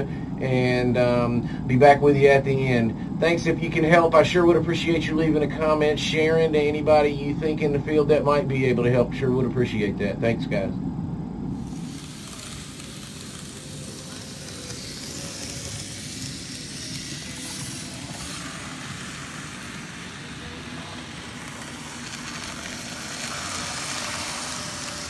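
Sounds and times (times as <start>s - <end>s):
model train rumbling on track: 11.6s - 25.0s.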